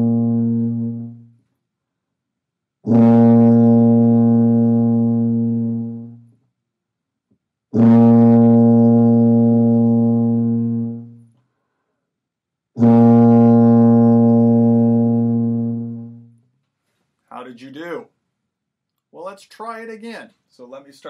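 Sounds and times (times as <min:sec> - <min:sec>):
tuba holding long notes: 0:00.0 - 0:01.4, 0:02.8 - 0:06.3, 0:07.7 - 0:11.3, 0:12.8 - 0:16.4.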